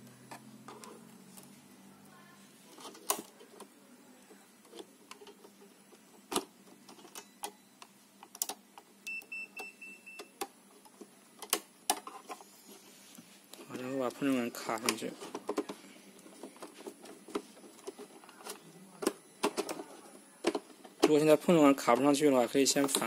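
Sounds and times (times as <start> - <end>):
faint high beeps: 7.1 - 7.9, 9.0 - 10.4.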